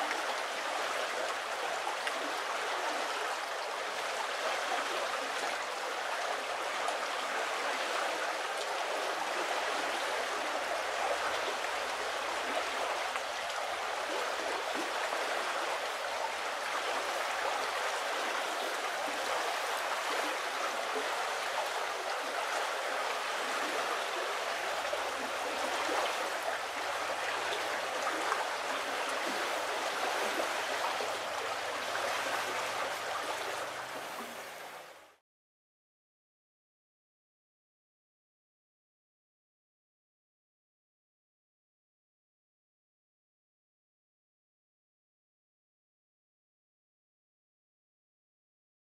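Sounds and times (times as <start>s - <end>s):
river water babbling over shingle: 0.0s - 35.2s.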